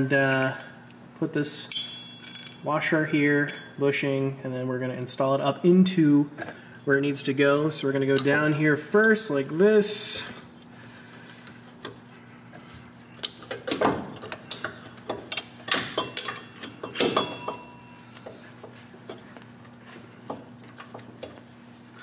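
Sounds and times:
light metallic clinks and knocks: 1.7 - 2.8, 15.3 - 18.3.

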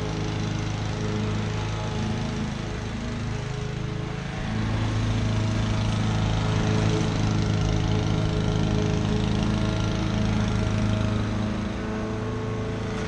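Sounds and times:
lawn mower engine running: 0.0 - 13.0.

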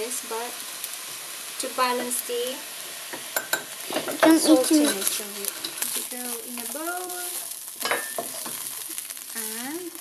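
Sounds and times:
rice sizzling in a wok: 0.0 - 10.0
spatula scraping a wok: 3.2 - 9.3.

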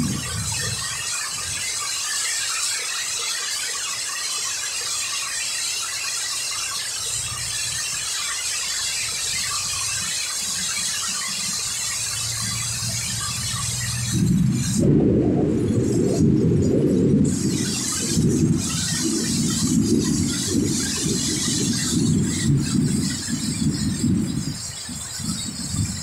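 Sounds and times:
strong wind gusts rumbling: 0.0 - 1.7, 12.3 - 26.0
heavy rain pouring: 0.0 - 4.9, 6.7 - 26.0.

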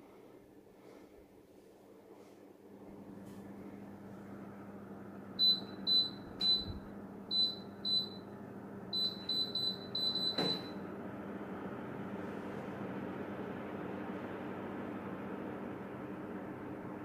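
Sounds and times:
air conditioner fan hiss and hum: 0.0 - 17.0.

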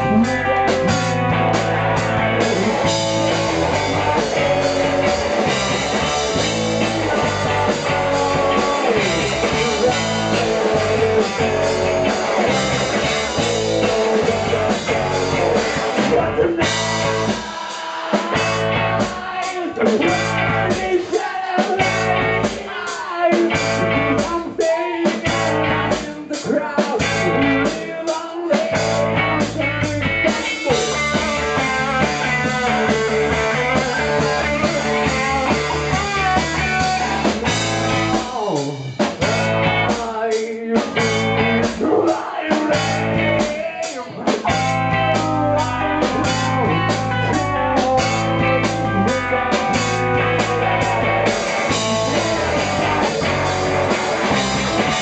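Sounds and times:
rock band playing: 0.0 - 55.0
person singing into microphone: 6.8 - 12.5, 13.3 - 37.3, 38.3 - 53.4.

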